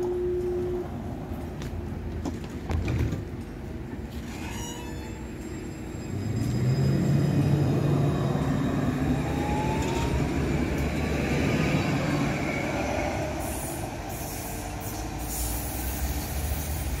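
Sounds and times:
tram wheels rumbling on rails: 0:00.0 - 0:17.0
tram motor whine rising: 0:05.4 - 0:17.0.

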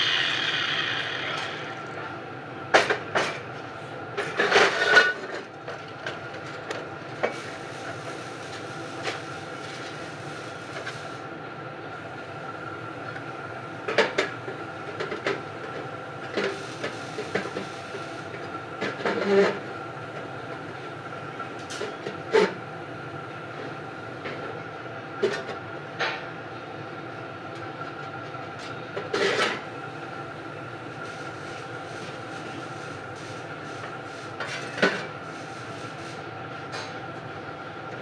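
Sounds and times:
shop machine hum: 0:00.0 - 0:24.0.

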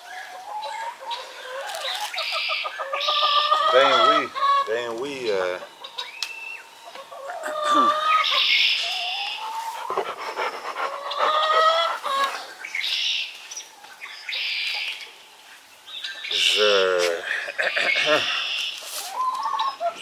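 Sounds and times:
chickens clucking: 0:00.0 - 0:20.0
chicken squawks: 0:07.0 - 0:12.5.

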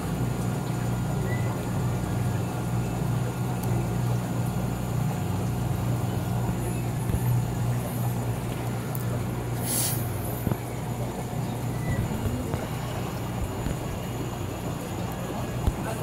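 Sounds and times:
aquarium pumps humming: 0:00.0 - 0:16.0
brief hiss: 0:09.6 - 0:10.1.

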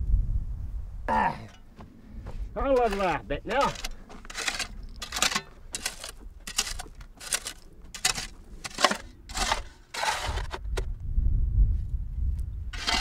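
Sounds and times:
shovel scraping into soil: 0:02.6 - 0:10.9, 0:12.7 - 0:13.0.

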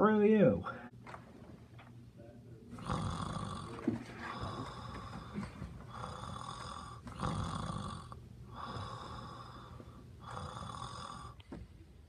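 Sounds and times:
person snoring: 0:02.8 - 0:11.4.

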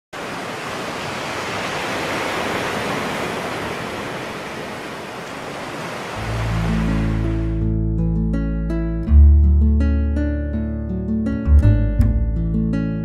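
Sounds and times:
ocean waves breaking on beach: 0:00.2 - 0:07.6
acoustic guitar music: 0:06.2 - 0:13.0.

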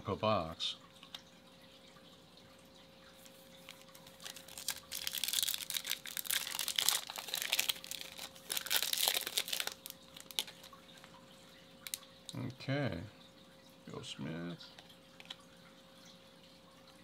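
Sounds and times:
foil wrapper crinkling and tearing: 0:03.2 - 0:10.8.

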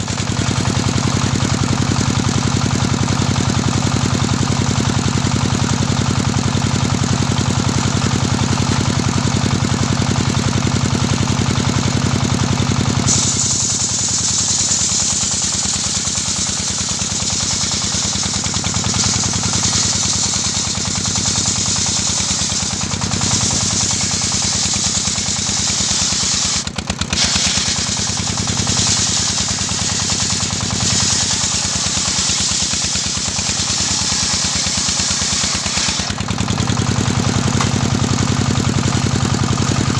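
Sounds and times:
sawmill engine running: 0:00.0 - 0:39.9
saw blade ripping wood: 0:13.0 - 0:36.8.

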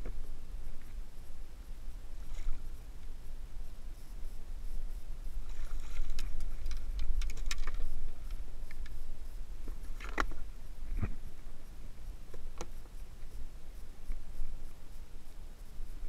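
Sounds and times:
steady low rumble: 0:00.0 - 0:16.0.

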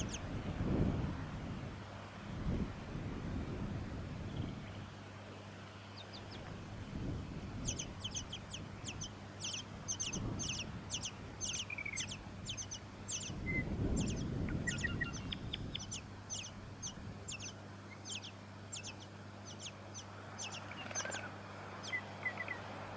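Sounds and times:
nestlings begging calls: 0:00.0 - 0:00.3, 0:05.9 - 0:22.9.

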